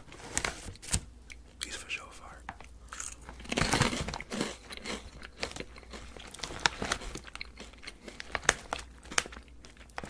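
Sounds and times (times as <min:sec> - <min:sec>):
chewing candy crunches: 0:02.6 - 0:10.0.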